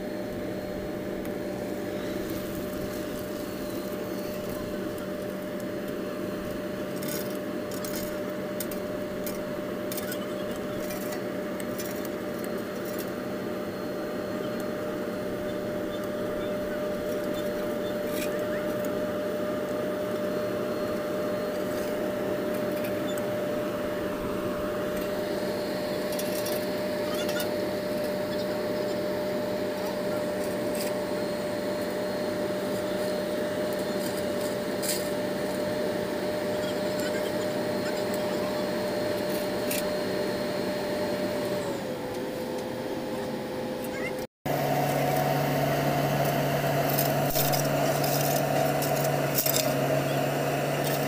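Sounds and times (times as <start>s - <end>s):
diesel engine with whine: 0.0s - 51.0s
shovels scraping gravel: 46.7s - 49.8s.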